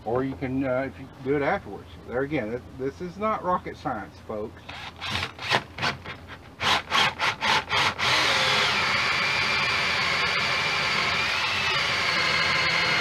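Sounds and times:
cordless drill cutting wood: 4.7 - 13.0
drill whine: 6.6 - 13.0.

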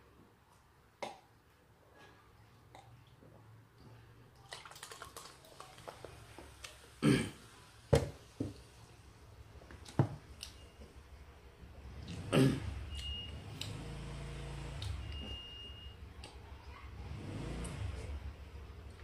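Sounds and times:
cola pouring and fizzing: 4.3 - 6.9.

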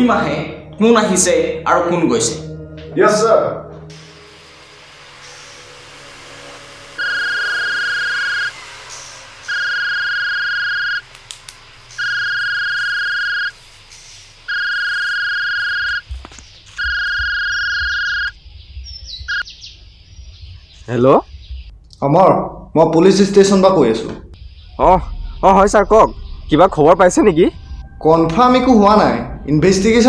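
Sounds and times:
phone ringtone beeps: 7.0 - 8.5, 9.5 - 11.0, 12.0 - 13.5, 14.5 - 16.0, 16.8 - 18.3.

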